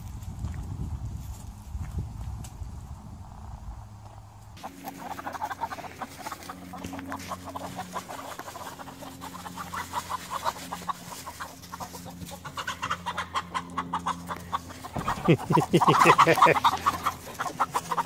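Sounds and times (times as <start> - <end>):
chickens clucking: 4.6 - 18.0.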